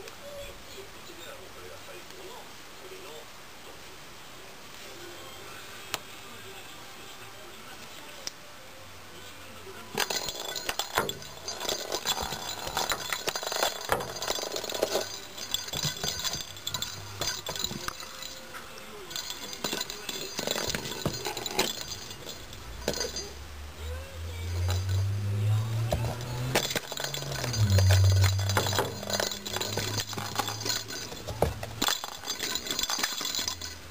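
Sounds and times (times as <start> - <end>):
cat ball bell jingling: 9.9 - 33.9
low hum: 21.5 - 32.2.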